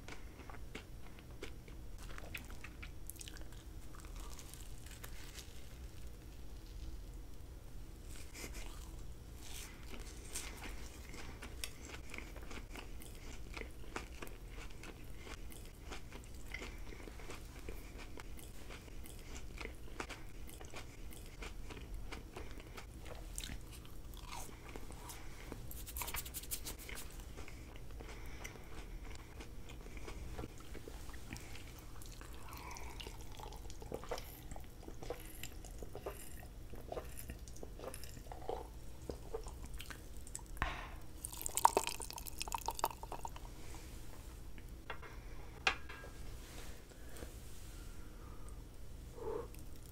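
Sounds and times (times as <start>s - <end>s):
person chewing candy: 0.0s - 6.8s, 8.1s - 40.6s, 41.2s - 43.5s
candy crackling: 2.1s - 7.1s.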